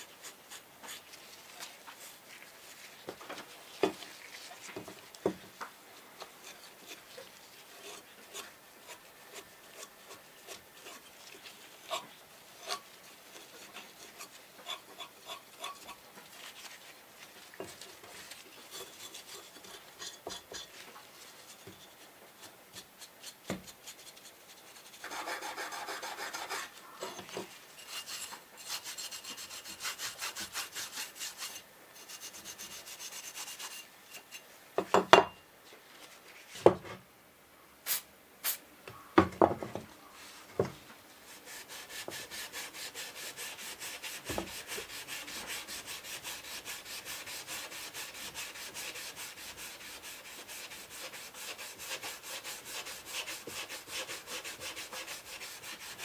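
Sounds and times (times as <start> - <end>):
aerosol spray hisses: 37.8 - 38.6.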